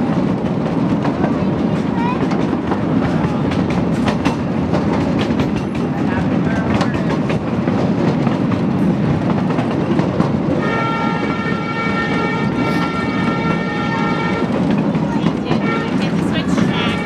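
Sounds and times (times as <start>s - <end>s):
train wheels rumbling on rail: 0.0s - 17.0s
train horn: 10.5s - 14.8s, 15.4s - 17.0s.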